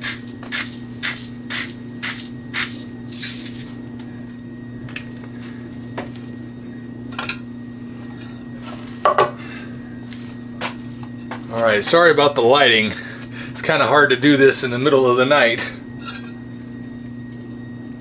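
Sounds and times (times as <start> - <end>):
spice grinder crunching: 0.0 - 3.8
steady low hum: 0.0 - 18.0.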